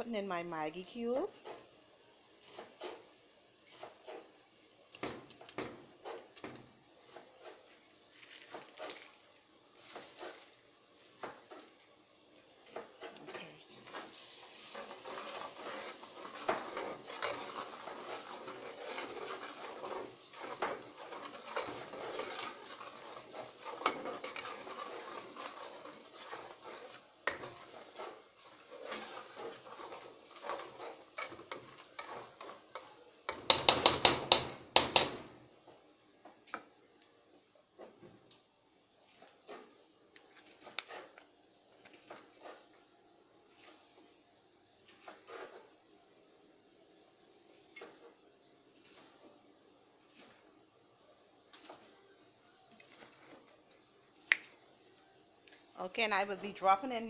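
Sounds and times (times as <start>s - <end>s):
vegetables sizzling in oil: 0.0s - 57.0s
metal spoon scraping pot: 14.6s - 35.2s.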